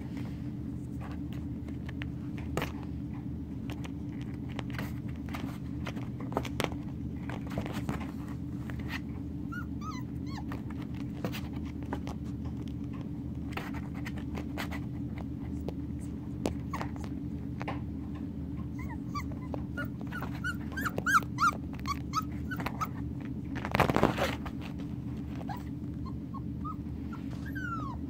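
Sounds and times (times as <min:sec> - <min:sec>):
puppies scuffling on carpet: 0:00.0 - 0:28.0
steady low hum: 0:00.0 - 0:28.0
puppy yelps: 0:09.5 - 0:10.8, 0:18.7 - 0:23.0, 0:25.3 - 0:28.0.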